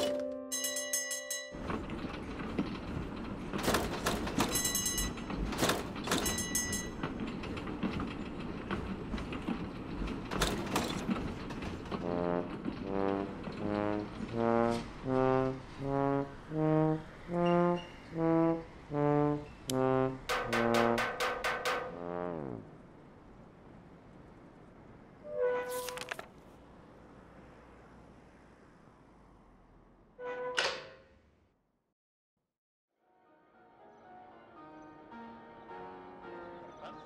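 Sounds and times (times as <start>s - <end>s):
tram rumbling on rails: 0.0s - 31.4s
brass instrument honking notes: 12.0s - 21.0s.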